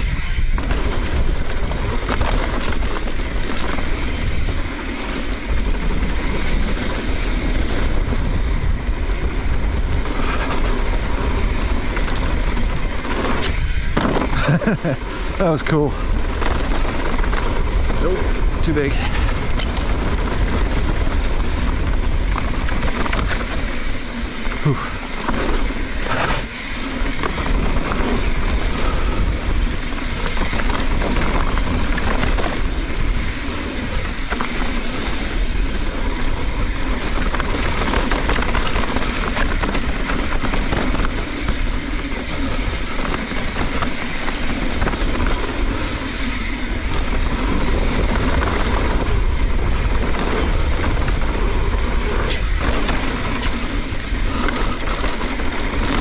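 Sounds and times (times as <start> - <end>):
tyres rolling on dirt: 0.0 - 56.0
wind rushing over microphone: 0.0 - 56.0
bike knocks and rattles: 10.1 - 15.0.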